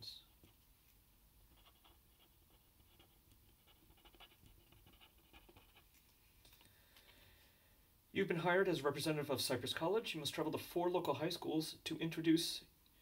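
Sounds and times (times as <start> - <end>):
felt-tip pen scratching on paper: 1.5 - 6.0.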